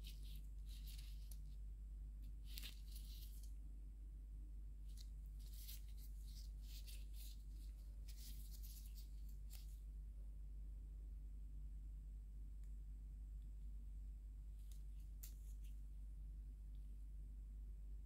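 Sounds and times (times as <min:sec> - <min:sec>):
gloves rustling and scratching: 0:00.0 - 0:03.6, 0:04.8 - 0:10.0, 0:14.6 - 0:15.9
steady low hum: 0:00.0 - 0:18.0.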